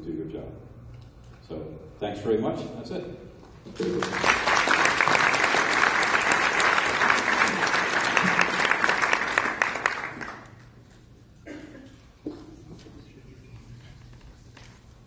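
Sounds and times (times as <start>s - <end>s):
audience applauding: 3.8s - 10.7s.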